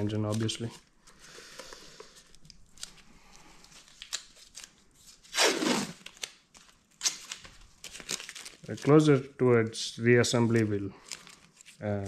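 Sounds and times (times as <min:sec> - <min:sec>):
masking tape ripping off roll: 0:04.0 - 0:08.7.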